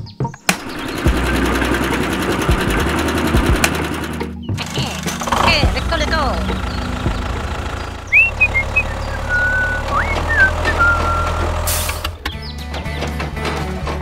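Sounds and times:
engine humming: 0:00.2 - 0:14.0
whistled gliding notes: 0:08.1 - 0:11.6.

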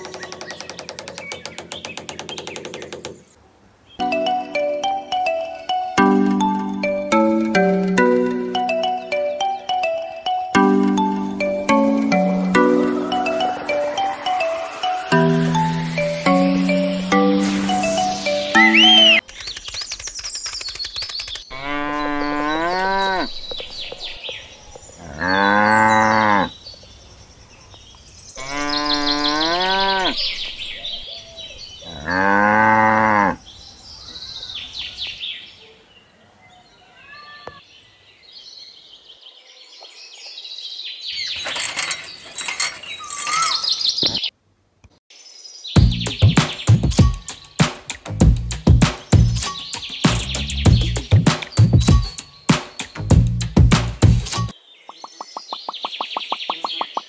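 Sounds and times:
birds chirping: 0:00.0 - 0:44.4, 0:45.2 - 0:47.7, 0:48.6 - 0:57.0
cattle mooing: 0:28.4 - 0:30.2, 0:31.8 - 0:33.4.

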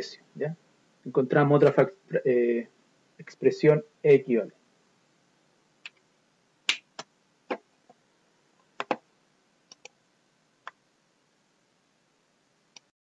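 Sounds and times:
computer mouse clicking: 0:09.7 - 0:10.0.

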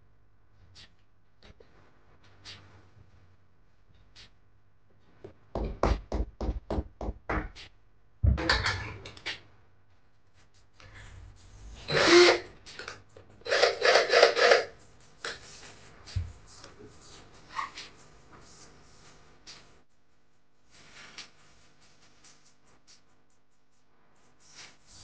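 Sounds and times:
cordless drill boring into wall: 0:11.9 - 0:12.5, 0:13.5 - 0:14.7.

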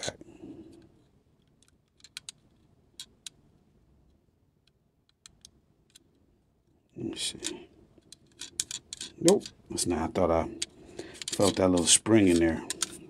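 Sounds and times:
toy car wheels clicking: 0:11.1 - 0:13.0.

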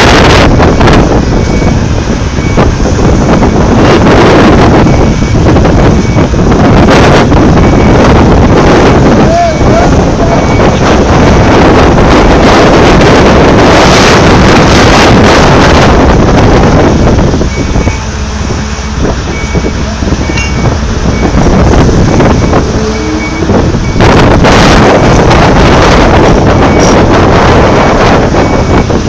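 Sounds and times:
excavator rumble: 0:00.0 - 0:29.0
wind buffeting microphone: 0:00.0 - 0:29.0
faint irregular beeping: 0:09.6 - 0:11.6, 0:19.3 - 0:24.3.

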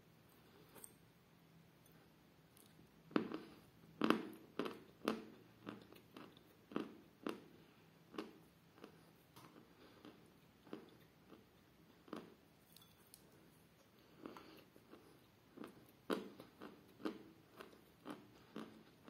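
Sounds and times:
chalk crunching while chewing: 0:14.0 - 0:19.0.

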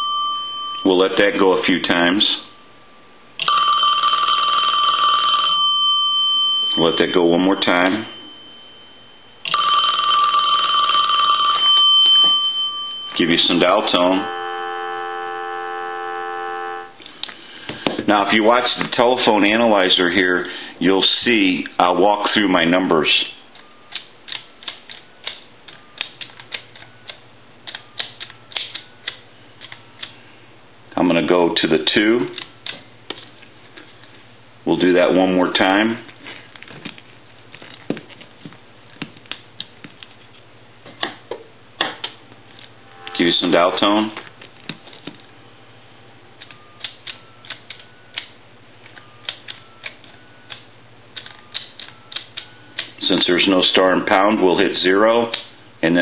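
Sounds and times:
telephone keypad buttons clicking: 0:23.6 - 0:30.2, 0:46.4 - 0:53.0
short faint dial tone: 0:42.9 - 0:43.6.

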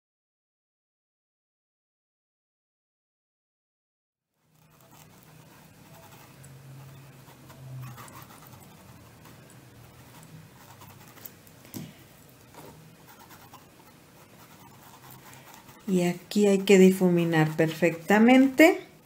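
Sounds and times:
paintbrush scratching on fabric: 0:04.4 - 0:11.6, 0:12.2 - 0:19.0
low steady hum: 0:04.5 - 0:19.0.

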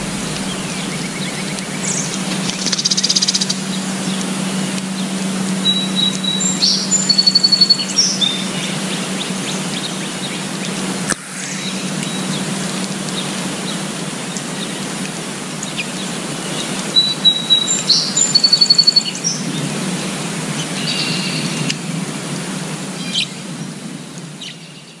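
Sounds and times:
rain on foliage: 0:00.0 - 0:07.2.

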